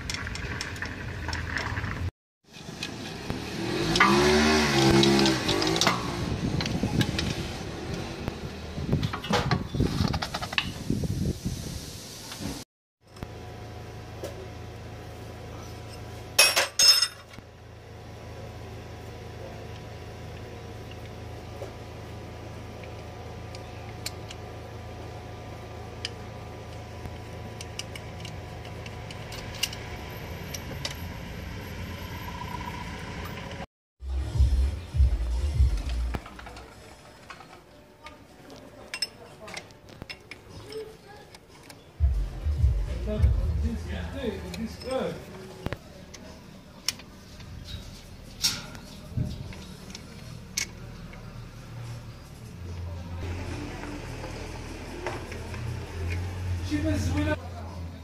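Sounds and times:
steady low hum: 42.0s - 44.8s.

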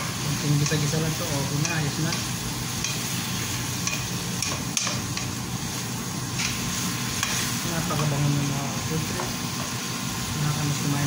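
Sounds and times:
food sizzling in pan: 0.0s - 11.0s.

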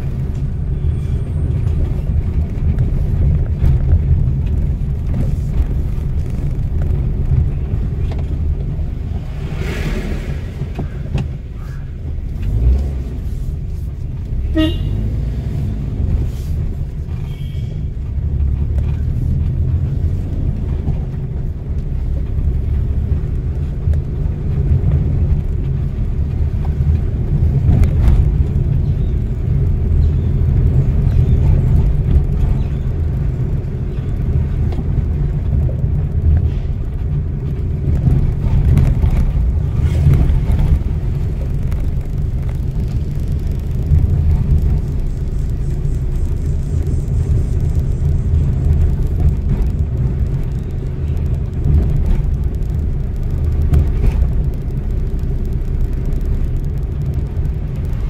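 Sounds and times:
car engine and road rumble: 0.0s - 58.0s
vehicle horn toot: 14.4s - 15.1s.

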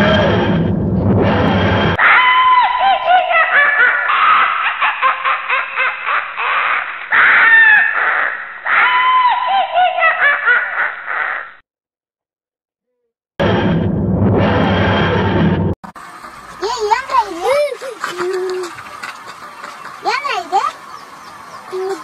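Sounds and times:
eerie high-pitched cackling laughter: 2.0s - 11.6s, 16.6s - 18.8s.

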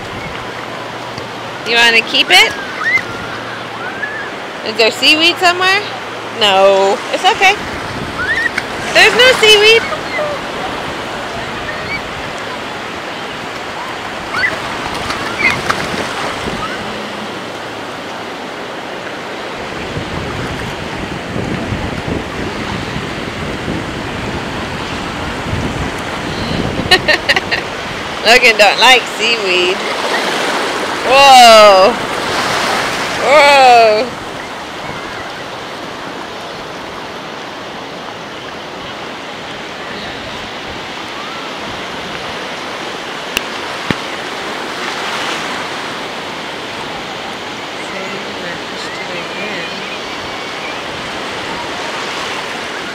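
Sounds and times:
wind noise on microphone: 0.0s - 1.0s, 7.4s - 12.8s, 13.8s - 17.3s, 19.6s - 28.9s
ocean surf washing over sand: 0.0s - 52.9s.

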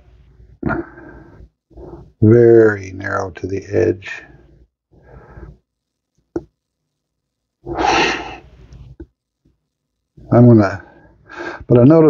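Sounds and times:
man breathing: 0.6s - 2.2s, 4.4s - 5.7s, 7.6s - 8.5s, 10.9s - 11.7s.

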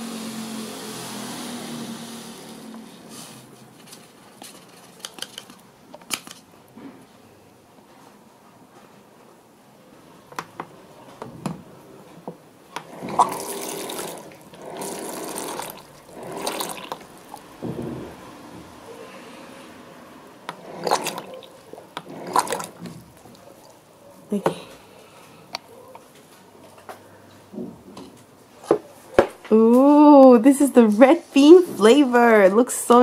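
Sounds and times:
hot water pouring into bowl: 13.0s - 17.6s, 20.7s - 21.5s, 22.1s - 22.9s.

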